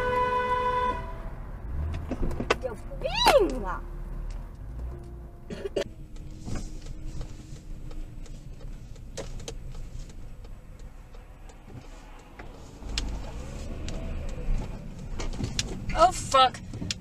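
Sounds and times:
road and engine rumble: 0.0s - 17.0s.

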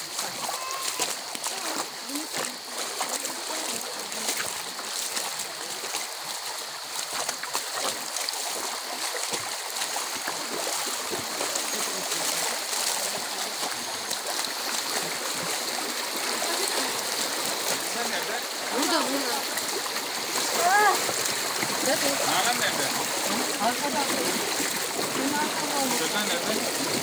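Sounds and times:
small water splashes: 0.0s - 27.0s
stream rushing over rocks: 0.0s - 27.0s.

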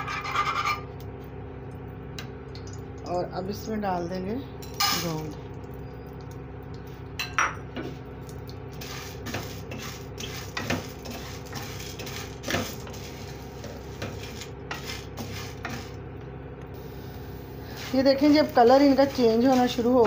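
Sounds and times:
wooden spatula scraping pan: 0.0s - 0.9s, 8.8s - 16.0s, 17.6s - 20.0s
steady low hum: 0.0s - 20.0s.

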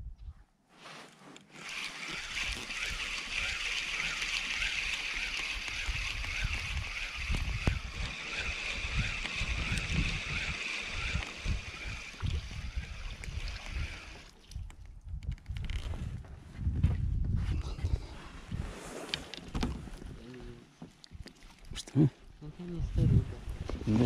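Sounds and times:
fishing reel gear whirr: 1.5s - 14.4s.

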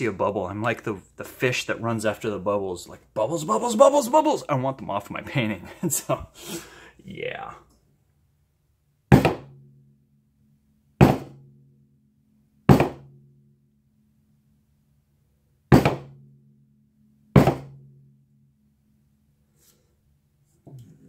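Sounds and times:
hammer whacking canvas: 9.1s - 9.6s, 11.0s - 11.4s, 12.7s - 13.1s, 15.7s - 16.2s, 17.4s - 17.8s
low hum: 9.5s - 21.0s.

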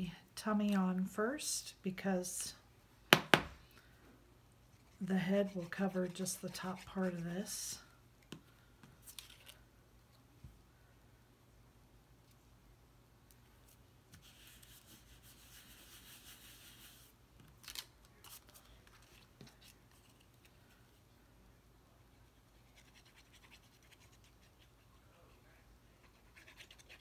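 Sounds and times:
glue bottle nib scratching paper: 22.6s - 24.9s.

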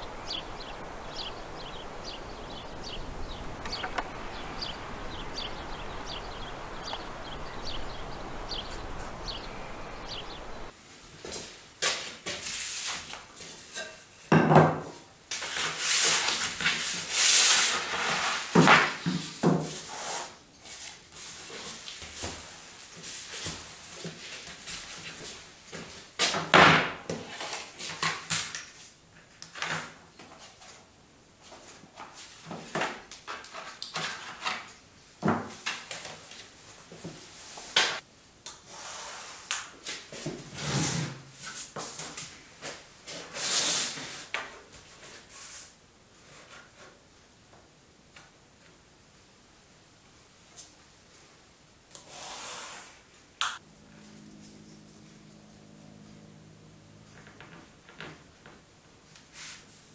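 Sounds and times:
small birds chirping: 0.0s - 10.7s
paper rustling and crackling: 31.5s - 34.8s.

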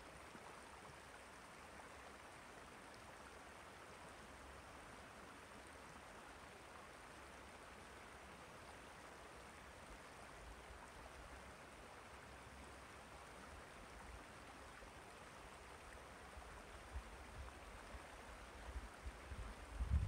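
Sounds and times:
wind bumps on microphone: 19.4s - 20.0s.

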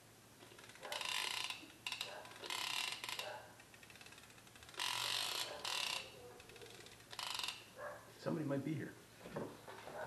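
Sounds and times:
fishing reel ratchet clicking: 0.4s - 7.7s.

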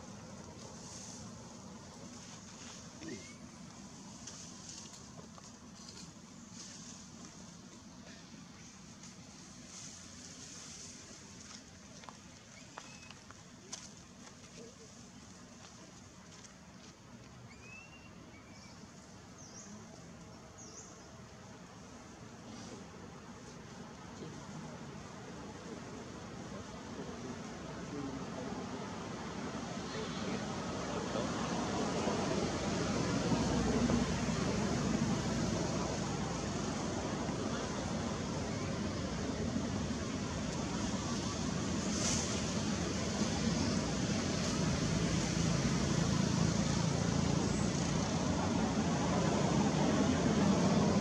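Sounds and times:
outdoor background hiss: 0.0s - 51.0s.

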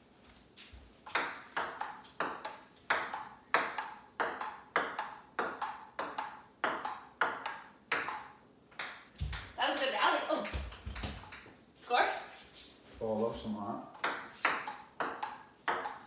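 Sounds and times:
ping-pong ball clicking: 1.1s - 9.4s, 14.0s - 16.0s.

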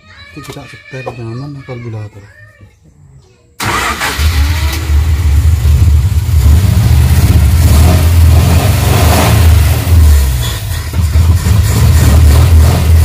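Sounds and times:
car engine revving: 3.6s - 13.0s.

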